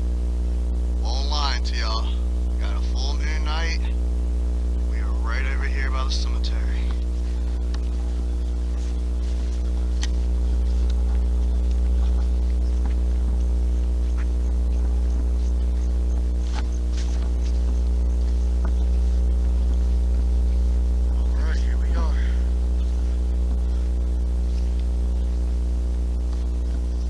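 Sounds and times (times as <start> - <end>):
faint steady tones: 0.0 - 27.0
steady low hum: 0.0 - 27.0
faint clicks and ticks: 6.8 - 21.2.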